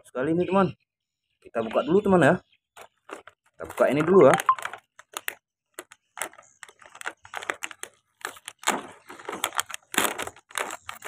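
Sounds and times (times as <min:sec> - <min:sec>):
plastic packaging crinkling and tearing: 0:02.8 - 0:11.0.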